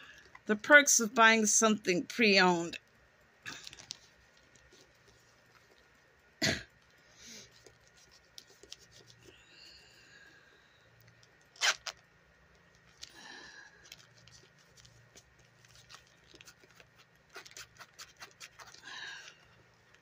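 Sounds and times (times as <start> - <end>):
person coughing: 6.4 - 6.7.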